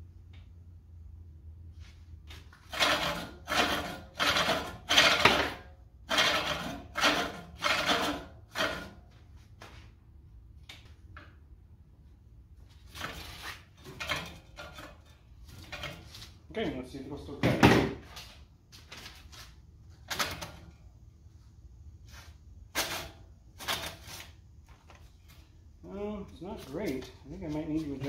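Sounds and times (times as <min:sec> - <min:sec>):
reel mower blades scraping: 0:02.3 - 0:09.0, 0:12.7 - 0:16.4.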